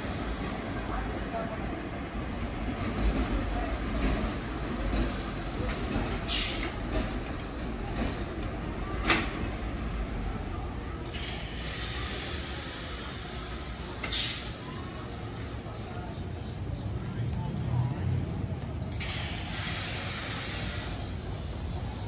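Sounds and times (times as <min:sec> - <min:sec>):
subway train rumbling: 0:00.0 - 0:22.0
air hiss bursts: 0:11.2 - 0:14.6, 0:19.0 - 0:21.2.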